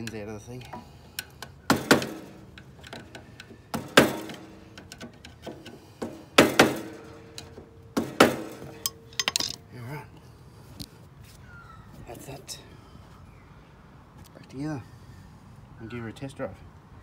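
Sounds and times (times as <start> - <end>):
short metallic ring: 8.4 - 9.7.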